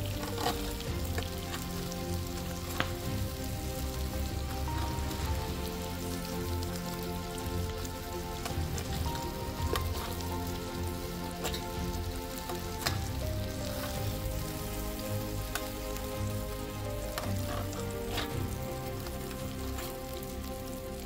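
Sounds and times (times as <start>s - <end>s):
food sizzling on a griddle: 0.1s - 21.0s
metal utensil clinking bowl: 17.2s - 18.6s.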